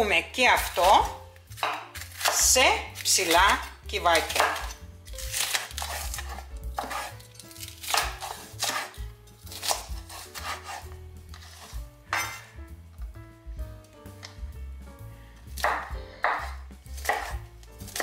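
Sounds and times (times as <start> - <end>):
soft background music: 0.0 - 18.0
knife slicing on cutting board: 4.3 - 12.5, 15.6 - 18.0.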